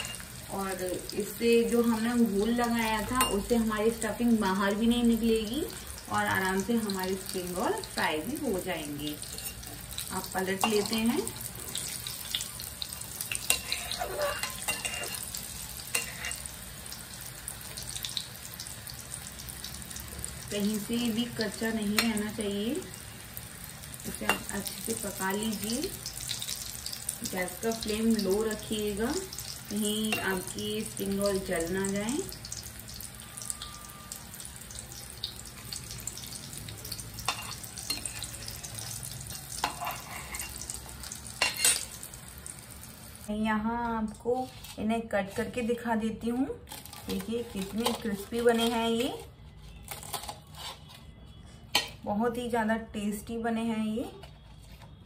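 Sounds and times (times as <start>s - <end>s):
metal spatula scraping pan: 0.0s - 0.3s, 11.7s - 16.6s, 37.3s - 40.8s, 46.7s - 51.1s
food sizzling in hot oil: 0.0s - 49.3s.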